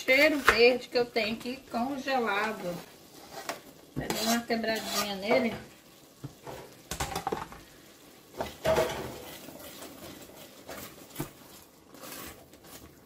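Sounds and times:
spoon scraping a pan: 2.2s - 6.8s, 8.3s - 13.0s.

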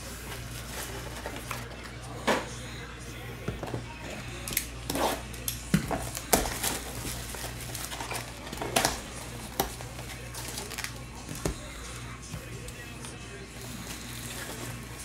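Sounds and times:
plastic wrap and foil crackling: 0.0s - 2.0s, 4.4s - 11.8s
sharp crinkles and snaps: 4.4s - 11.7s.

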